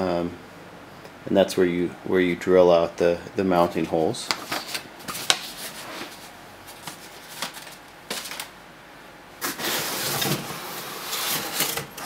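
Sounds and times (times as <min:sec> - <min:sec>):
cardboard rustling and scraping: 0:04.3 - 0:08.5, 0:09.4 - 0:11.8.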